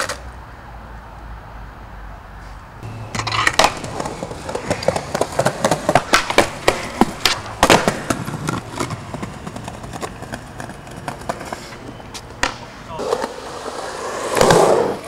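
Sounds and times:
skateboard rolling on concrete: 0.0 - 15.0
skateboard clacks and knocks: 3.1 - 15.0.

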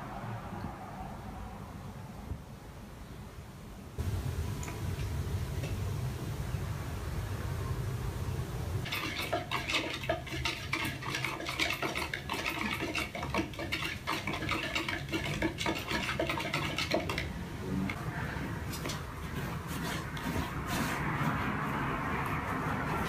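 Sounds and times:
low hum: 4.0 - 8.9
stick scraping plastic tub: 8.9 - 17.4, 18.6 - 23.0.

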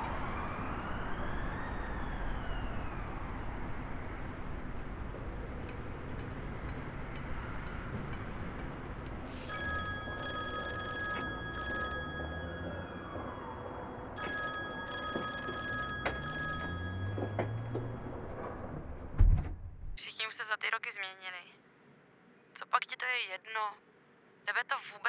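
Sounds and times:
telephone ringing: 9.5 - 18.6.

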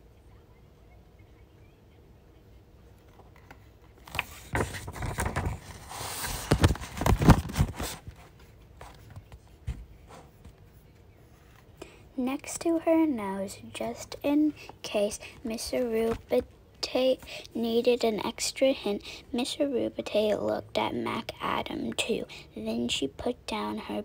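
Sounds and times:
paper page rustling: 3.1 - 11.7.

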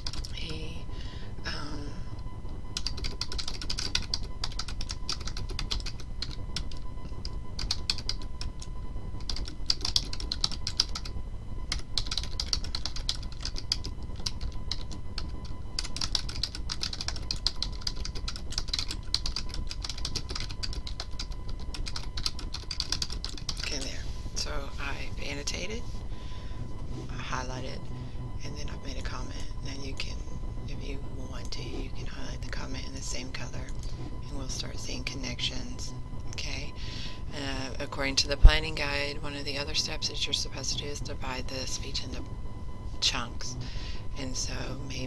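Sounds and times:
computer keyboard typing: 0.0 - 0.6, 2.8 - 11.1, 11.7 - 23.9.

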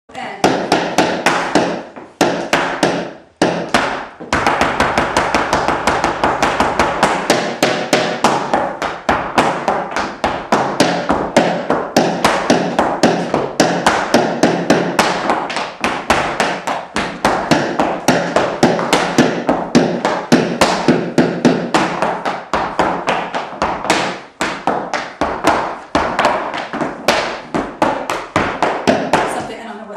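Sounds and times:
shoes and cane tapping floor: 0.2 - 29.9.

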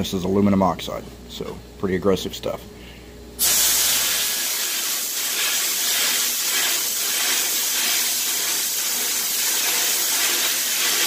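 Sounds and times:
sandblast nozzle hissing: 3.4 - 11.0.

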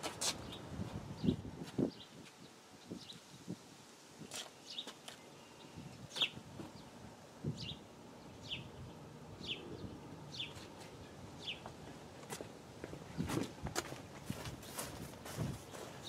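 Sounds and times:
bird chirping: 4.3 - 6.9, 7.5 - 12.0.

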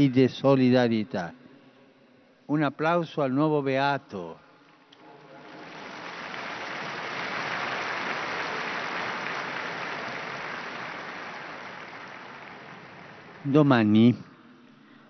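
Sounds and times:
crowd applauding: 5.1 - 14.2.

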